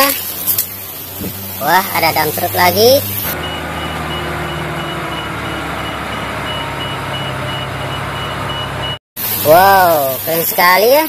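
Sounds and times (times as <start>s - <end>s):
low engine hum: 0.2s - 9.0s
truck reversing alarm beeps: 3.2s - 9.0s.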